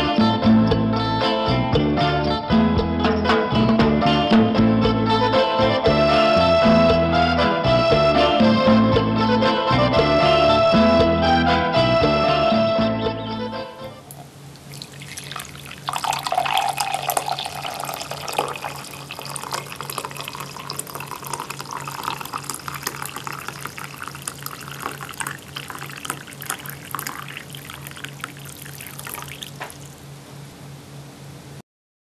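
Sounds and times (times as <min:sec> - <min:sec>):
low steady hum: 0:13.8 - 0:31.6
coffee pouring into a mug: 0:14.1 - 0:30.0.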